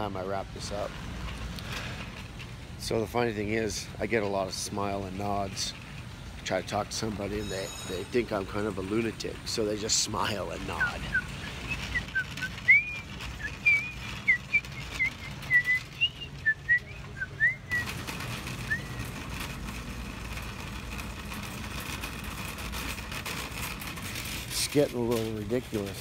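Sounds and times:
steady background hum: 0.0s - 26.0s
man whistling a tune: 10.8s - 17.8s.

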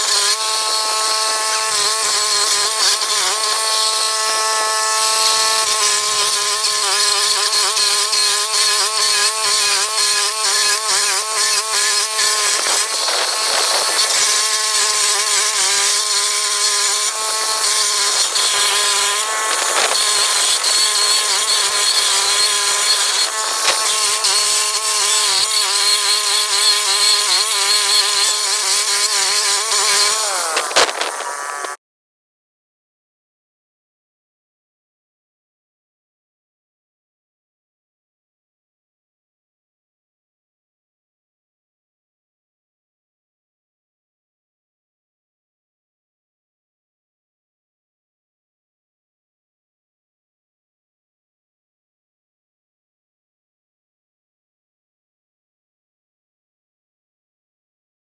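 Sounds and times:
cutter wheel grinding stump: 0.0s - 31.8s
small gas engine running: 0.0s - 31.8s
wood chips crackling: 12.5s - 14.3s, 19.2s - 20.8s, 30.4s - 31.7s.

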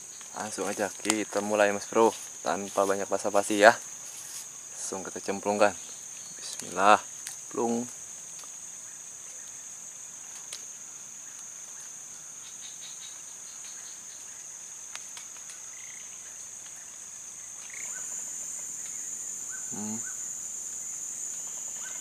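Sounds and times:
high-pitched insect drone: 15.5s - 22.0s.

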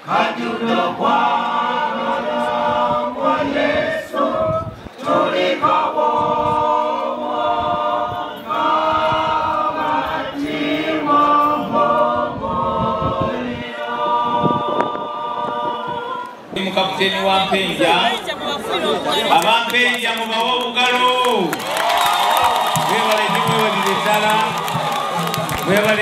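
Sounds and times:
women's choir singing: 0.0s - 16.6s.

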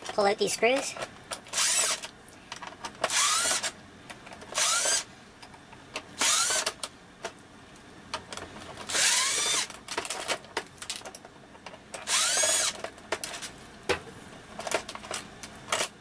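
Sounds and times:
cordless drill whirring: 1.5s - 2.0s, 3.1s - 3.8s, 4.6s - 5.1s, 6.2s - 6.7s, 8.9s - 9.7s, 12.0s - 12.8s.

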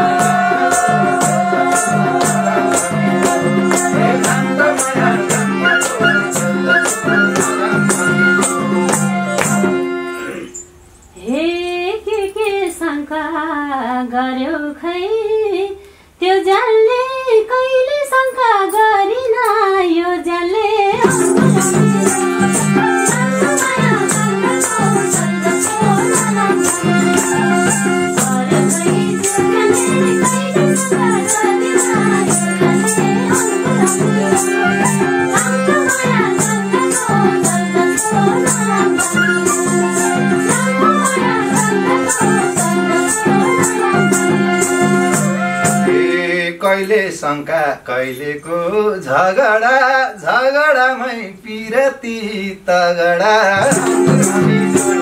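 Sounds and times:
woman singing: 0.0s - 9.8s, 11.2s - 46.3s, 49.2s - 55.0s
harmonium chords: 0.0s - 10.6s, 21.0s - 46.2s
hand shaker beat: 0.0s - 10.7s, 20.9s - 46.1s, 53.6s - 55.0s.

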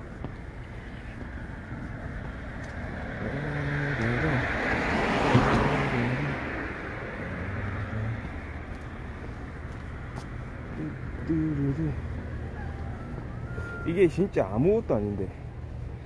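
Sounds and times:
road vehicle passing: 0.0s - 16.0s.

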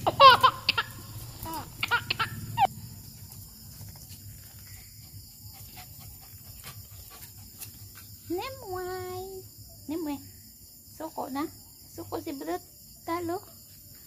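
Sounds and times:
dogs yelping and whining: 0.0s - 2.7s
dog growling: 0.9s - 2.7s.

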